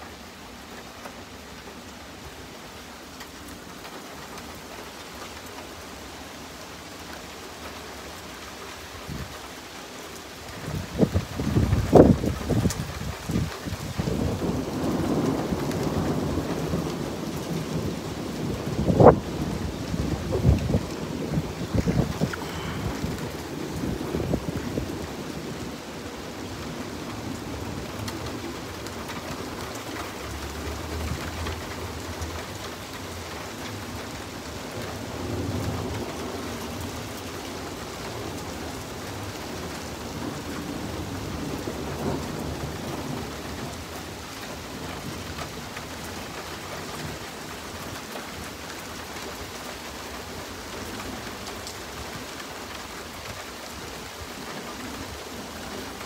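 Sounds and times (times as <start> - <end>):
rain falling on pavement: 0.0 - 56.0
distant thunder rumbling: 10.7 - 45.4.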